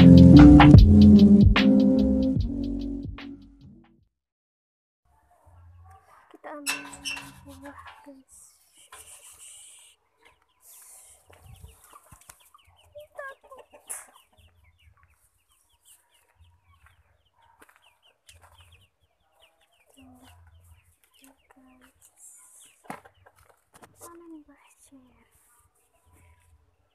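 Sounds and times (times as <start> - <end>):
chickens clucking: 6.4 - 24.2.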